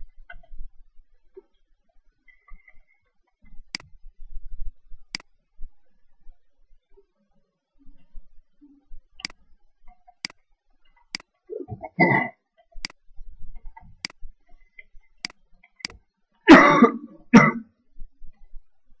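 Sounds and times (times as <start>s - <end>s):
computer mouse clicks: 3.7s - 4.0s, 9.2s - 11.3s, 12.6s - 13.0s, 13.6s - 14.2s, 14.8s - 16.0s
person coughing: 11.7s - 12.3s, 16.5s - 17.7s.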